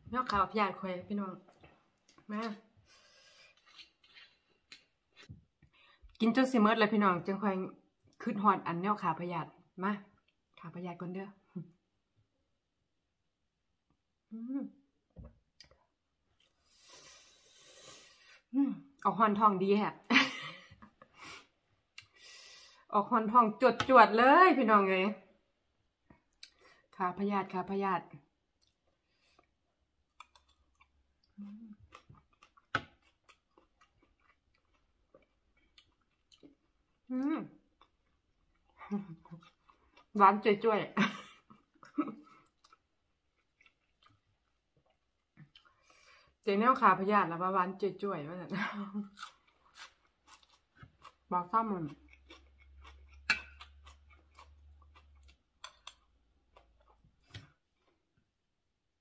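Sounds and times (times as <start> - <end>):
person chewing wetly: 28.6 - 37.1, 37.7 - 40.2, 41.5 - 45.9, 49.2 - 58.0
person chewing with wet mouth clicks: 52.0 - 57.0.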